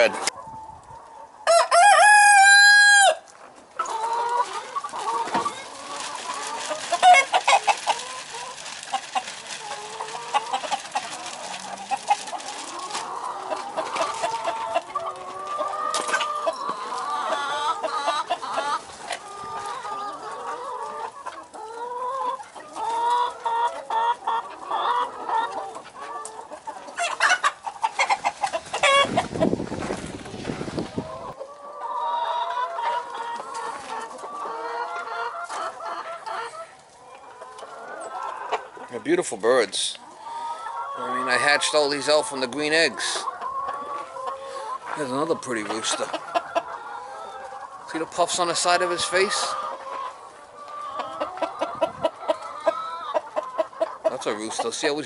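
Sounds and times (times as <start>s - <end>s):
chickens clucking and calling: 0.0s - 55.0s
rooster crowing: 1.5s - 3.2s.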